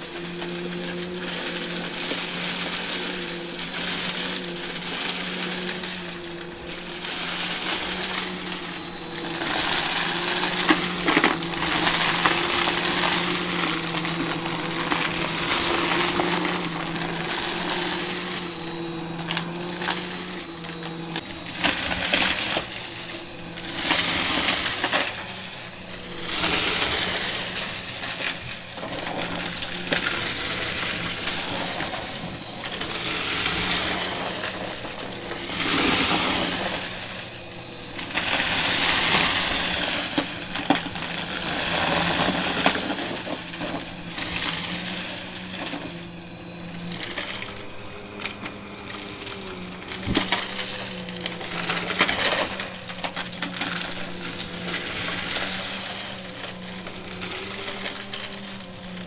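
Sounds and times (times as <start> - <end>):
debris crackling in vacuum: 0.0 - 59.0
vacuum cleaner motor hum: 0.0 - 59.0.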